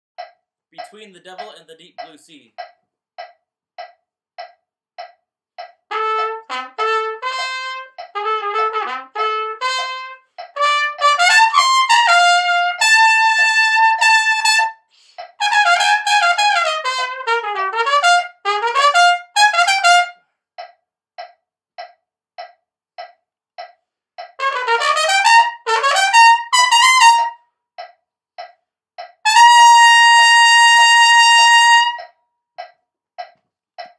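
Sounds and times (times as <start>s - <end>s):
click track: 0.2s - 5.8s, 7.9s - 8.2s, 20.6s - 24.4s, 32.0s - 33.9s
solo trumpet playing: 5.9s - 14.8s, 15.4s - 20.2s, 24.4s - 27.4s, 29.3s - 32.1s.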